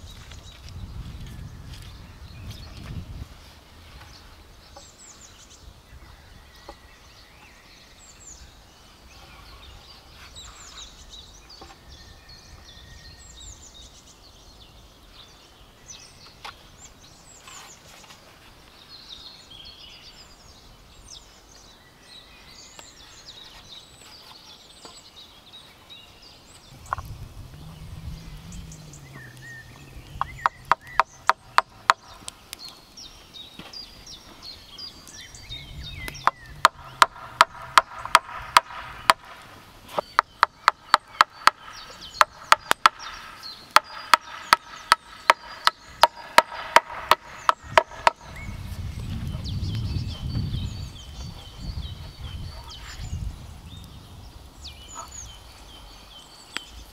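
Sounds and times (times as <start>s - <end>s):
birds chirping: 0.0s - 56.9s
low rumble: 26.7s - 30.6s
hammer striking nails into wood: 30.4s - 32.3s, 36.2s - 39.4s, 40.2s - 48.4s.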